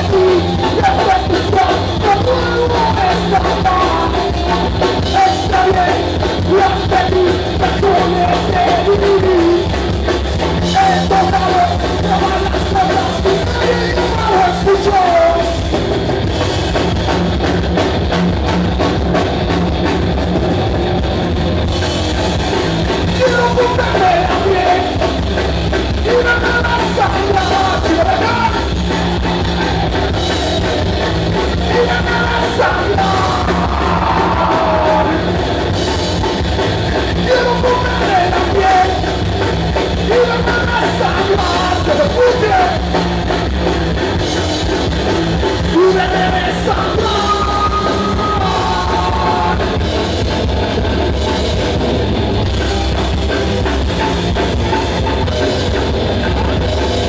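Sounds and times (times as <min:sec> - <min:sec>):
singer's voice: 0:00.0 - 0:15.7, 0:23.0 - 0:25.2, 0:25.9 - 0:29.8, 0:31.4 - 0:35.5, 0:37.0 - 0:39.3, 0:39.9 - 0:43.2, 0:45.6 - 0:49.9
bass guitar: 0:00.0 - 0:57.0
drum kit: 0:00.0 - 0:57.0
electric guitars: 0:00.0 - 0:57.0.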